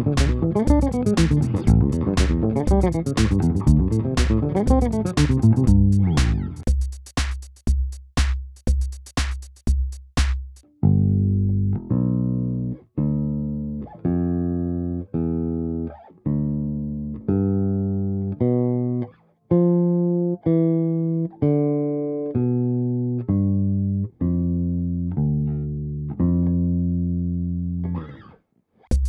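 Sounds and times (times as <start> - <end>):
electric bass arpeggio: 0.0 - 6.7, 10.7 - 28.2.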